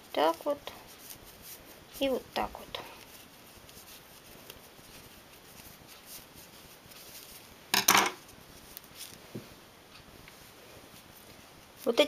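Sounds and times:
faint rustling of a toy: 0.0s - 12.0s
hard object clattering: 7.7s - 8.2s.

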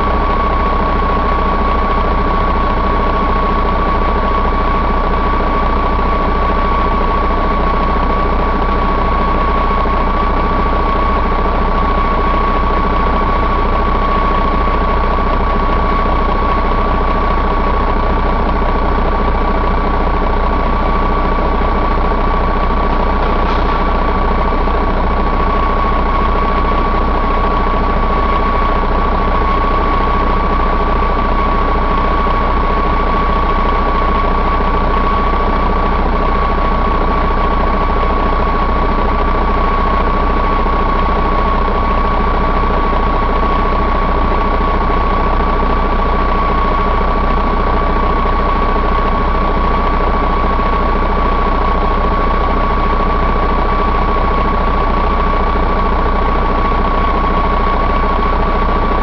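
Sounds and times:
diesel engine idling: 0.0s - 59.0s.

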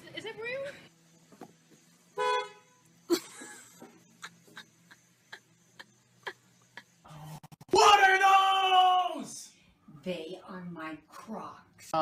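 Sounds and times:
car horn honk: 2.2s - 2.9s.

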